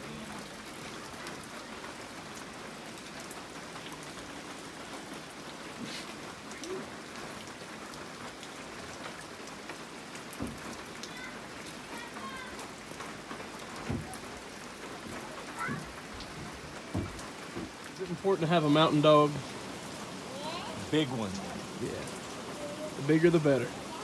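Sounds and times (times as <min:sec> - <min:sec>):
rain on foliage: 0:00.0 - 0:24.0
raindrop taps: 0:08.2 - 0:23.7.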